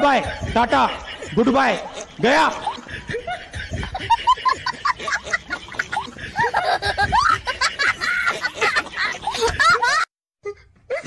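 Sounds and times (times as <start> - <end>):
person laughing: 0.0 - 11.0.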